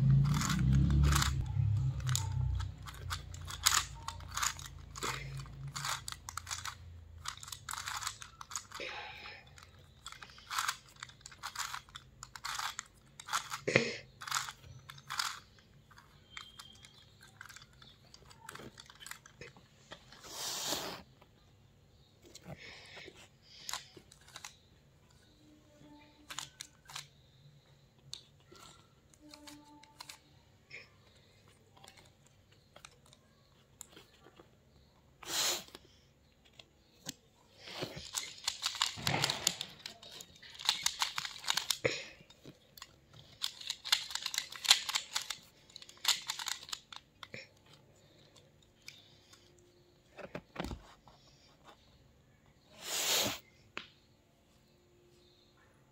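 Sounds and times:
puzzle cube clattering clicks: 0.0 - 20.2, 23.6 - 27.4, 28.0 - 30.3, 36.4 - 50.8.

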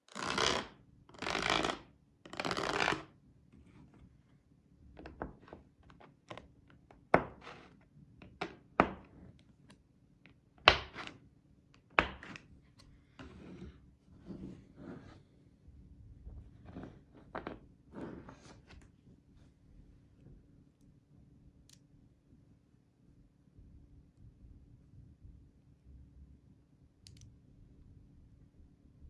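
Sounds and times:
plastic card scraping magnetic balls: 1.2 - 3.0.

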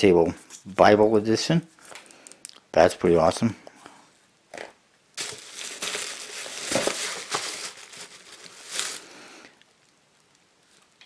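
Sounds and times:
hand rummaging in cardboard box: 5.2 - 9.0
bubble wrap crinkling: 5.2 - 11.0.

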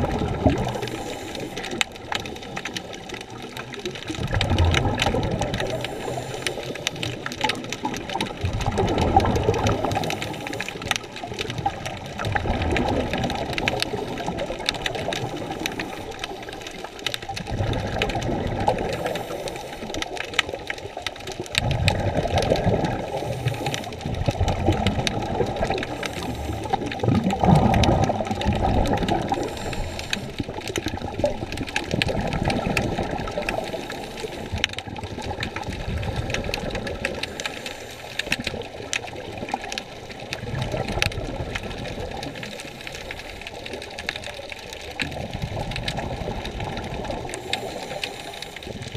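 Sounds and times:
muffled bubbles gurgling: 0.0 - 48.9
diver breathing through regulator: 0.7 - 1.9, 5.6 - 7.0, 18.8 - 20.0, 23.1 - 24.0, 25.8 - 27.0, 29.2 - 30.5, 33.5 - 34.7, 37.2 - 38.5, 47.2 - 48.9.

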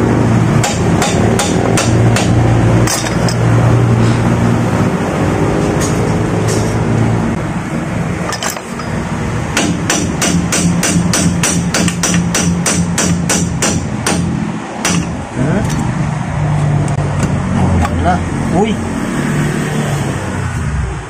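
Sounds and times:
hammer tapping on metal: 0.6 - 3.4, 9.6 - 15.8.

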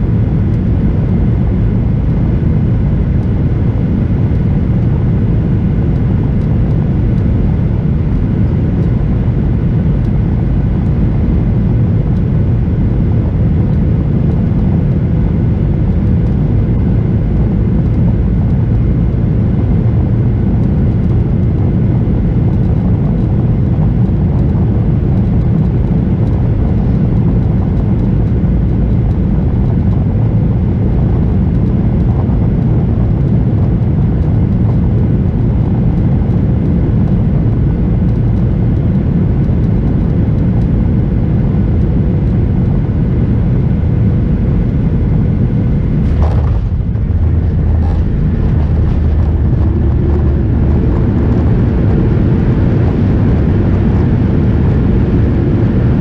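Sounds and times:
airplane cabin engine rumble: 0.0 - 56.0
faint steady hum: 0.0 - 56.0.

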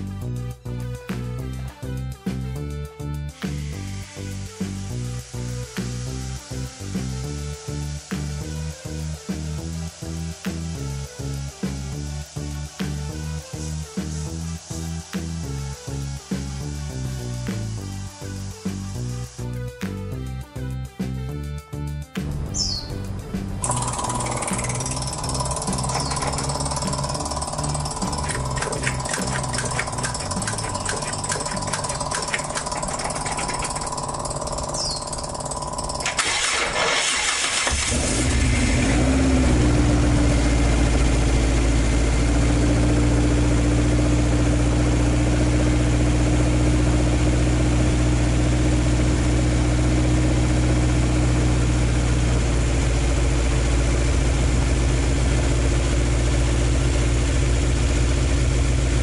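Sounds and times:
car engine starting and idling: 23.2 - 59.0
rapid rhythmic clatter: 23.6 - 36.6.

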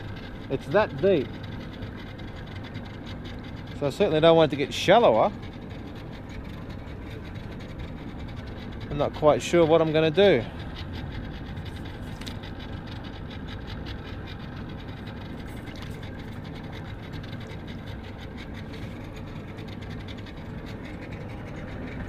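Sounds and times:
outboard motor running: 0.0 - 22.0.

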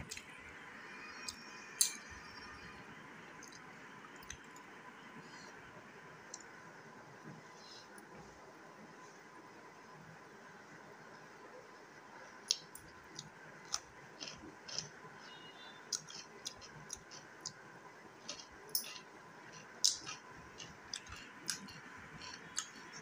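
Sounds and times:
person chewing with smacking: 18.2 - 23.0.

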